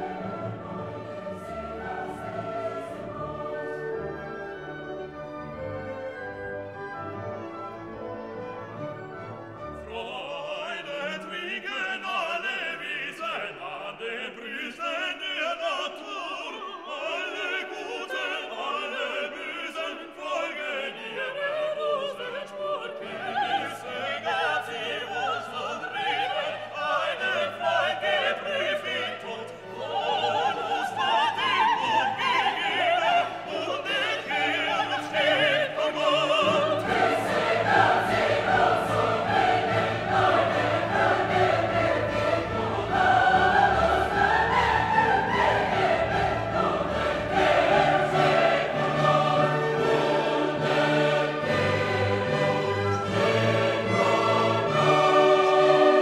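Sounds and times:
operatic singing: 0.0 - 5.6, 9.7 - 56.0
orchestra playing: 0.0 - 11.9, 29.6 - 56.0.

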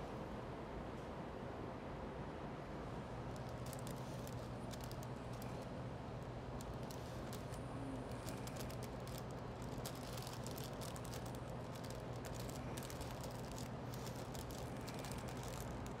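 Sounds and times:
steady low hum: 0.0 - 16.0
paper crinkling: 3.4 - 5.7, 6.6 - 16.0.

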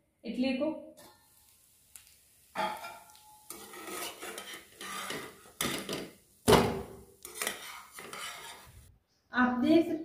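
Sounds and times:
spatula scraping and knocking pan: 2.6 - 8.9.

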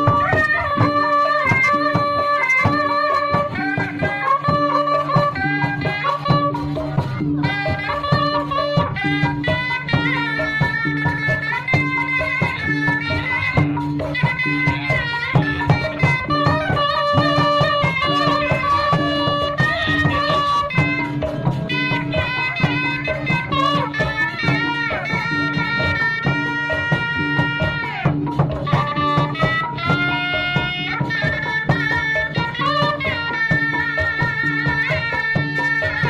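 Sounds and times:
drums beating steady pulse: 0.0 - 36.0
shrill reed wind instrument: 0.0 - 36.0.

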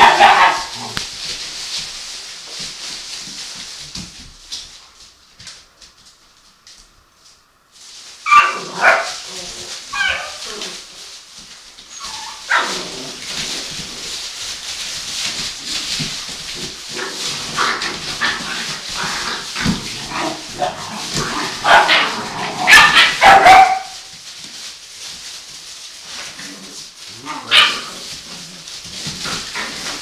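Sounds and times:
puppies yipping and barking: 0.0 - 0.8, 9.9 - 10.6, 11.9 - 13.8, 16.6 - 24.1
rustle of paper bedding: 0.0 - 30.0.

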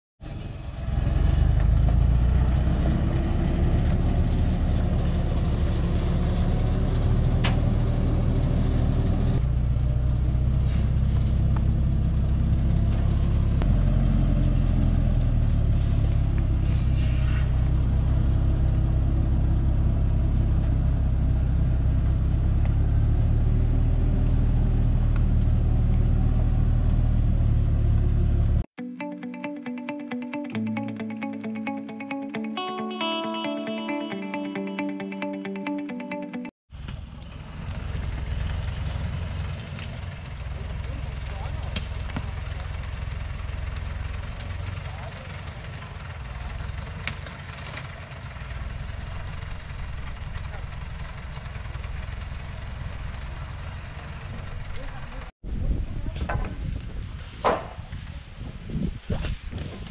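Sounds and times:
truck engine under load: 0.2 - 28.6, 36.7 - 55.3.

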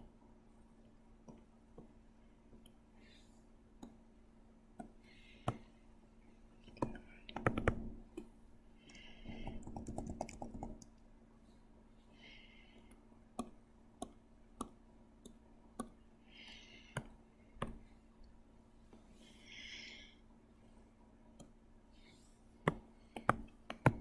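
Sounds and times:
computer mouse clicking: 6.8 - 8.3, 8.9 - 11.0.

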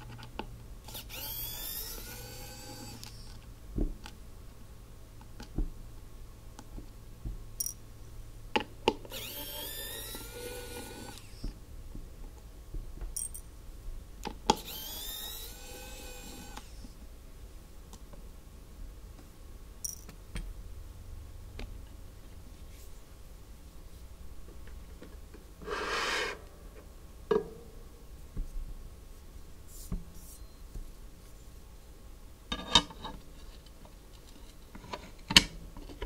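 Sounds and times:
small electric motor whirring: 0.9 - 3.4, 9.1 - 11.5, 14.6 - 16.9.

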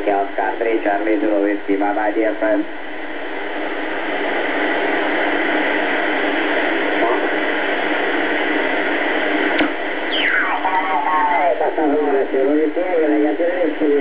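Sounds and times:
radio static hiss: 0.0 - 14.0
sharp click: 9.6 - 9.8.

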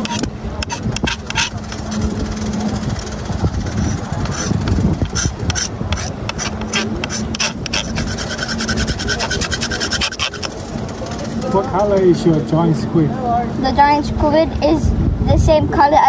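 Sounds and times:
knife scraping plastic cutting board: 0.0 - 1.6, 3.7 - 10.5.

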